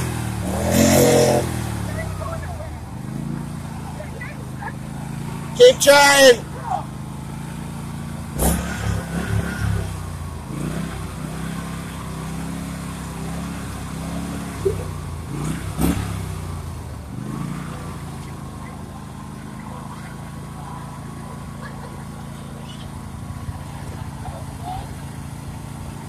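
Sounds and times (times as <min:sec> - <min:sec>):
lawn mower engine running: 0:00.0 - 0:26.0.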